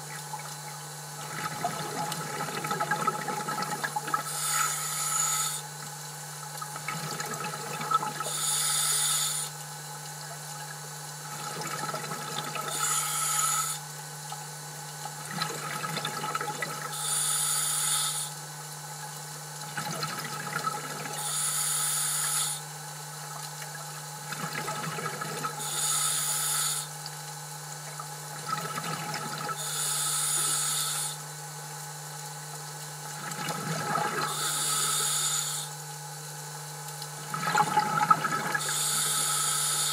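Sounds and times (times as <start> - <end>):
gurgle of exhaled bubbles: 0.0 - 5.7, 6.5 - 8.6, 10.2 - 13.0, 14.9 - 17.0, 19.6 - 21.3, 23.2 - 25.9, 27.9 - 29.8, 33.1 - 35.1, 37.2 - 39.9
regulator inhalation hiss: 4.3 - 5.6, 8.3 - 9.5, 12.7 - 13.8, 16.9 - 18.4, 21.2 - 22.6, 25.6 - 26.9, 29.6 - 31.2, 34.3 - 35.8, 38.6 - 39.9.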